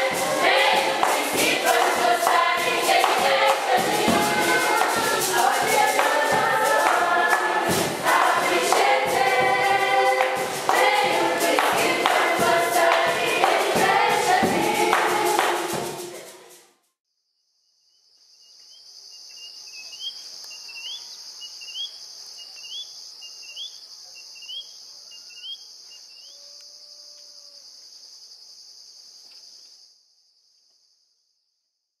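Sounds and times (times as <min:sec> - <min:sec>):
insects trilling: 0:00.0 - 0:13.8, 0:17.4 - 0:31.4
short rising insect call: 0:17.4 - 0:31.4.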